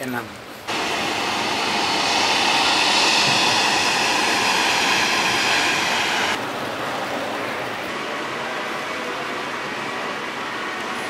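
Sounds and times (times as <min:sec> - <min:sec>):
faint high whine: 0:00.7 - 0:06.4
jet aircraft roar: 0:00.7 - 0:06.8.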